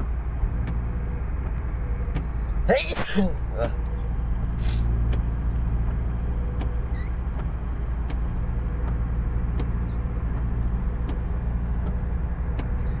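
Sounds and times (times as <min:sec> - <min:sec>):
car engine and road rumble: 0:00.0 - 0:13.0
faint ticks: 0:05.0 - 0:13.0.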